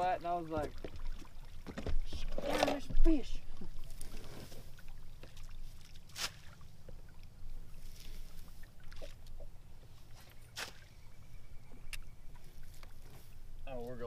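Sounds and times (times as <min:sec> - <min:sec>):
water lapping at boat bow: 0:00.0 - 0:13.8
low steady hum: 0:00.0 - 0:14.0
sharp water slaps: 0:05.3 - 0:06.7, 0:10.5 - 0:11.0.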